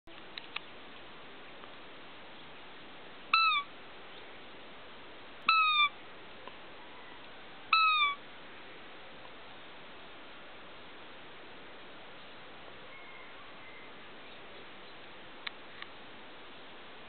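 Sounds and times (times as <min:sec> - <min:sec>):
high squeaky deer lure calls: 0:03.3 - 0:03.7, 0:05.5 - 0:05.9, 0:07.7 - 0:08.2.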